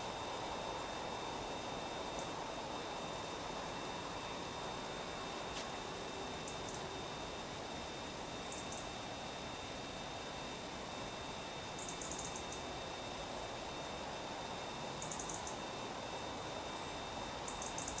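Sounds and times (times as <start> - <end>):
faint high whine: 0.0 - 18.0
steady hiss: 0.0 - 18.0
insect chirping clicks: 15.0 - 15.6.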